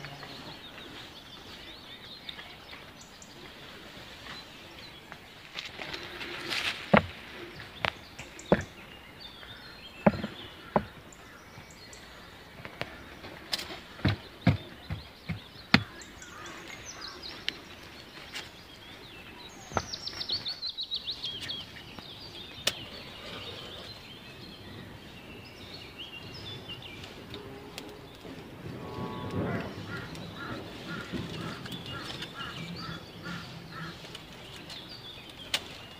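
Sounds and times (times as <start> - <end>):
birds chirping: 0.0 - 35.9
stones and wood knocking: 6.8 - 8.8, 10.0 - 11.0, 13.9 - 16.0.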